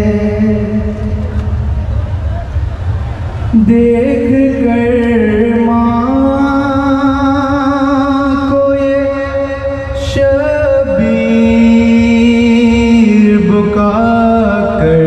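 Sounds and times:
man chanting a lament: 0:03.6 - 0:15.0.

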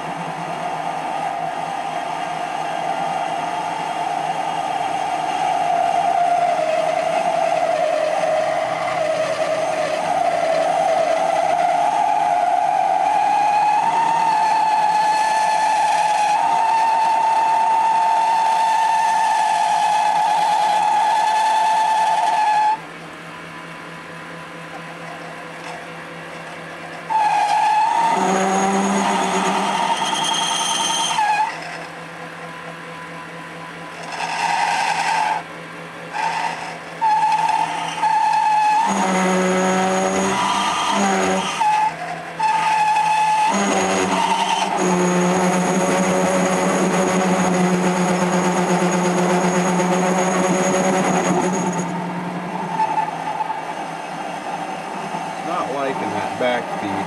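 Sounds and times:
lathe cutting squeal: 0:03.9 - 0:22.8, 0:26.4 - 0:31.9, 0:33.9 - 0:35.4, 0:36.1 - 0:57.0
lathe running: 0:24.8 - 0:57.0.

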